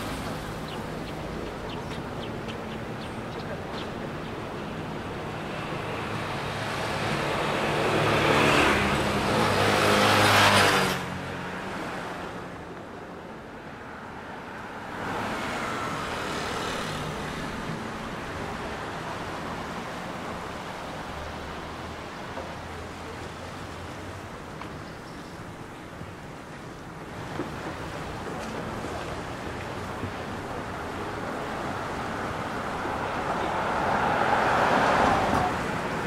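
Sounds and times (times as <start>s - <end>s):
steady traffic hum: 0.0s - 36.0s
vehicle passing close by: 5.2s - 12.3s, 31.6s - 36.0s.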